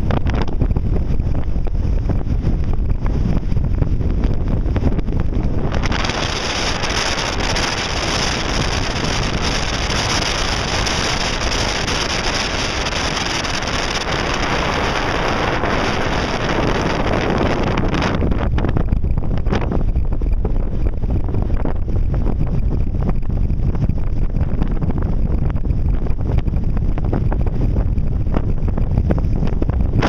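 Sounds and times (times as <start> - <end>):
wind buffeting microphone: 0.0 - 30.0
breaking surf: 5.2 - 18.4.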